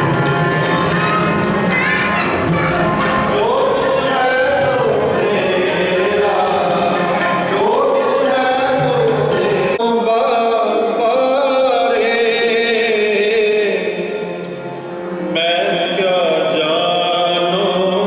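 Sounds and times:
harmoniums playing: 0:00.0 - 0:18.0
men singing a hymn: 0:03.3 - 0:14.4, 0:15.3 - 0:18.0.

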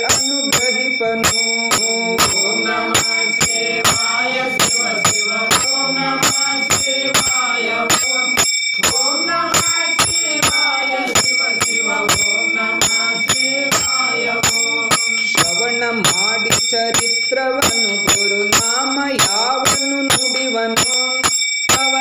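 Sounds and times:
hand cymbals struck in even beat: 0:00.0 - 0:22.0.

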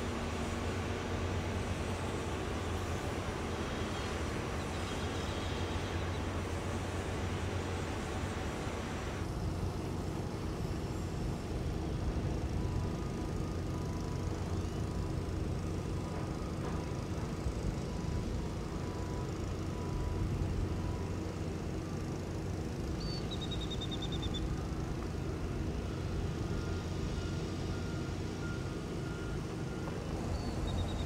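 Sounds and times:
wind: 0:00.0 - 0:31.0
distant heavy machinery rumble: 0:11.2 - 0:23.0, 0:23.7 - 0:31.0.

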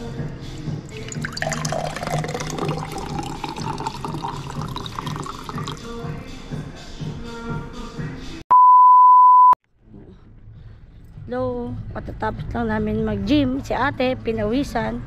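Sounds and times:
background music: 0:00.0 - 0:08.4
water pouring into glass: 0:00.9 - 0:05.9.

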